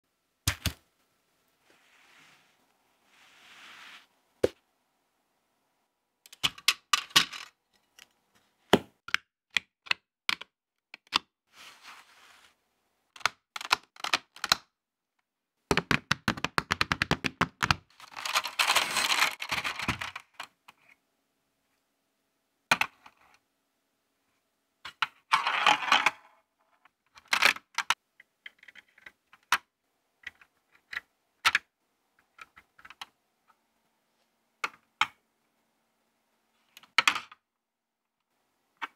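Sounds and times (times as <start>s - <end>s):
plastic pieces clicking together: 13.2s - 14.7s
plastic pieces rattling: 18.0s - 20.4s.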